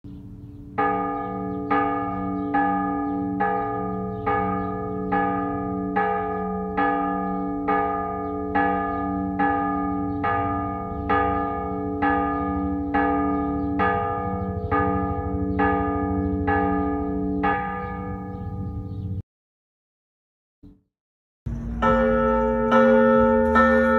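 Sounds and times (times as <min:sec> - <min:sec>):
church bell ringing: 0:00.1 - 0:19.2, 0:21.5 - 0:23.9.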